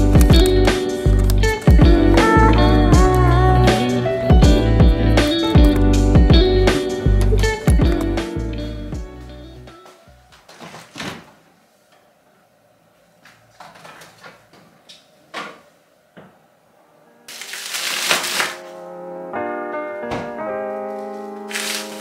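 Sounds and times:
soft background music: 0.0s - 10.4s, 16.8s - 22.0s.

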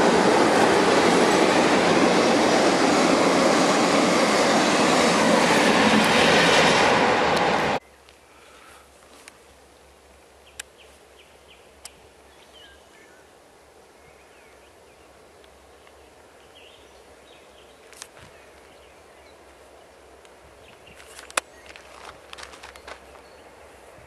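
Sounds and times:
birds chirping: 14.0s - 23.9s.

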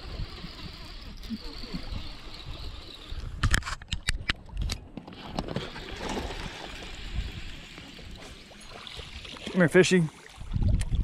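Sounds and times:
wind buffeting microphone: 10.4s - 11.0s.

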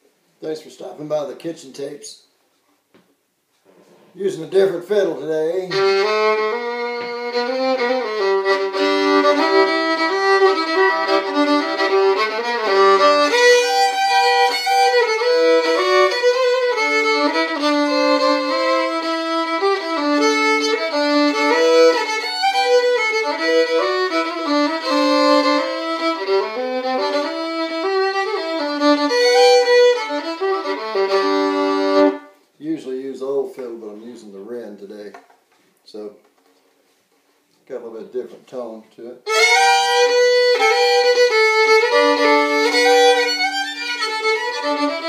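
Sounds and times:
fiddle played with bow: 4.6s - 32.5s, 39.2s - 45.0s.

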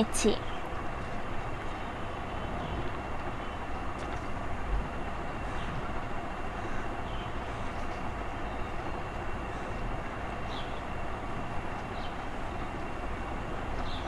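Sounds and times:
steady background rumble and hiss: 0.0s - 14.0s.

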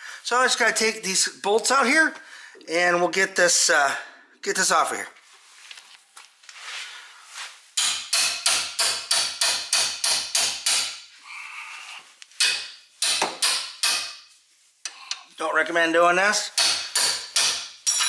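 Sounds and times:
hammer striking metal wrench: 7.8s - 11.0s, 12.4s - 14.2s, 16.5s - 18.0s.

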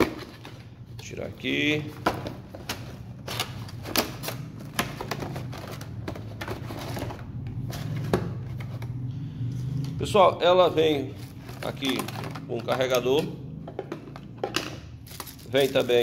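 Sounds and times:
plastic and cardboard crackling: 1.8s - 9.0s, 11.0s - 16.0s.

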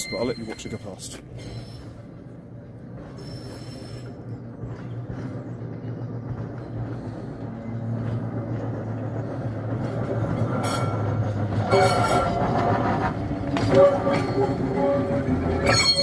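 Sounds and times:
faint wheel squeal: 0.0s - 2.1s, 3.1s - 4.2s, 10.6s - 12.8s, 13.6s - 16.0s
tram rumbling past on rails: 0.0s - 16.0s
wheels clicking over rail joints: 0.0s - 16.0s.

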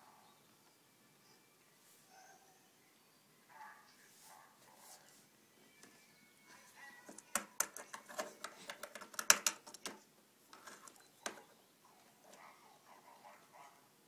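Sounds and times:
plastic toys clicking on table: 7.0s - 10.0s.

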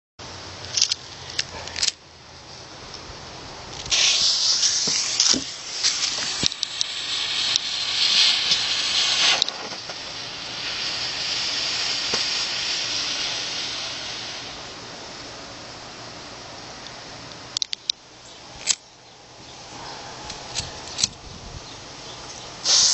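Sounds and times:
smoke firework hissing: 3.8s - 15.3s, 22.6s - 22.9s
sharp clicks: 16.8s - 18.0s.

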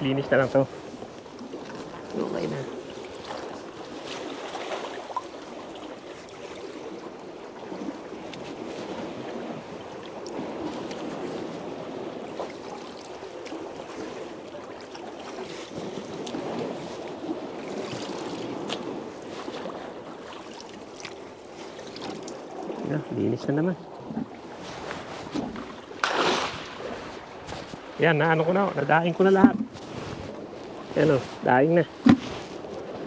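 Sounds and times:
water sloshing in a plastic bucket: 12.3s - 33.0s.

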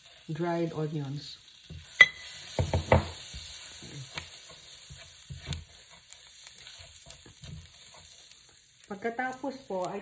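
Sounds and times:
onions sizzling in a pan: 0.0s - 10.0s
utensil scraping a pan: 1.8s - 8.7s.

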